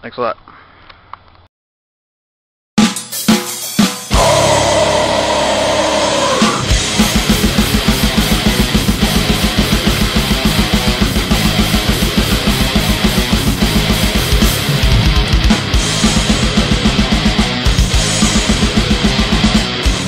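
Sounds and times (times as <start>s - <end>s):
fast drum beat: 2.8s - 19.7s
heavy rock music: 3.4s - 20.0s
electric guitar: 4.1s - 20.0s.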